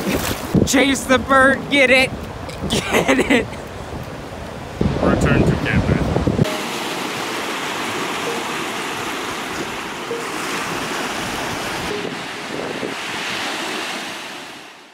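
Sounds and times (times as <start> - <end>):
wind on microphone: 0.0 - 14.6
small waves washing onto shore: 3.6 - 14.9.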